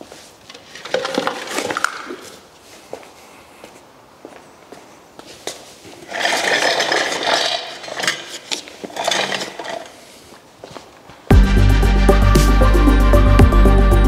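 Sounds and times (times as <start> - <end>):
footsteps on concrete: 1.6 - 6.0, 10.1 - 11.4
metal platform scraping on concrete: 5.9 - 10.2.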